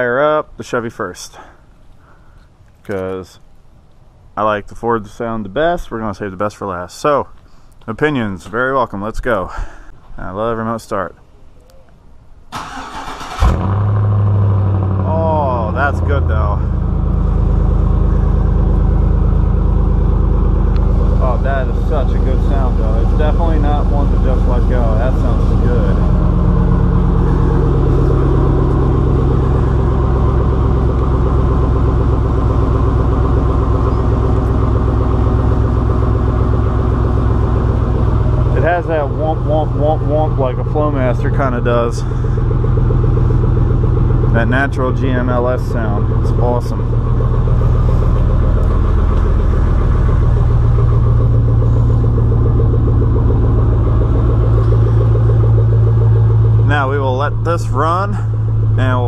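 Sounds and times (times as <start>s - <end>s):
truck engine idling: 12.6s - 59.0s.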